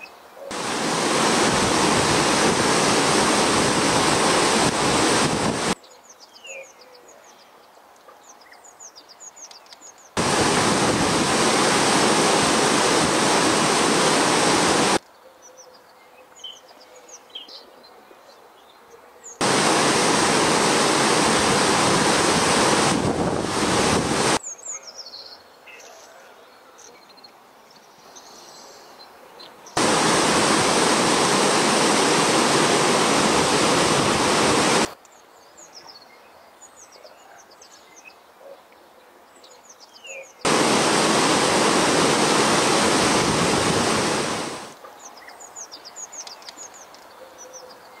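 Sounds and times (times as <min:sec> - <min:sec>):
churning river water rushing: 0:00.5 - 0:05.8, 0:10.2 - 0:15.0, 0:19.4 - 0:24.4, 0:29.8 - 0:35.0, 0:40.5 - 0:44.8.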